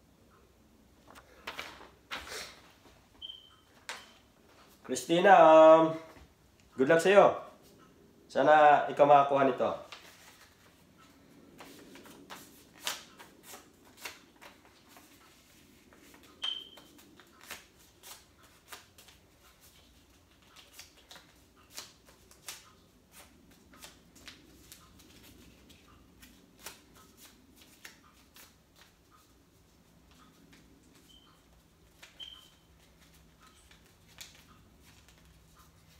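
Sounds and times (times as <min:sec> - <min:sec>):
paper crinkling: 0:09.8 - 0:35.9.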